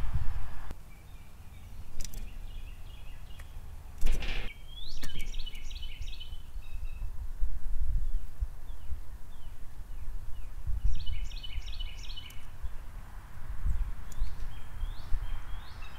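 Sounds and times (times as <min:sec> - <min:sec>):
low wind rumble: 0:00.0 - 0:15.9
small birds chirping: 0:00.6 - 0:15.9
bird landing flurry: 0:04.0 - 0:04.5.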